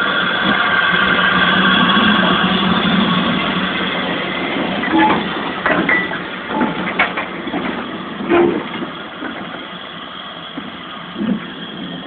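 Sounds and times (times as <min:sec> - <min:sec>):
metallic clanks and knocks: 0:04.8 - 0:09.6.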